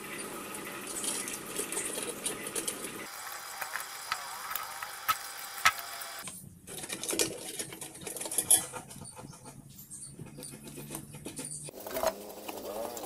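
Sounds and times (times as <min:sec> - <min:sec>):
metal and plastic parts rattling: 0:06.6 - 0:09.6.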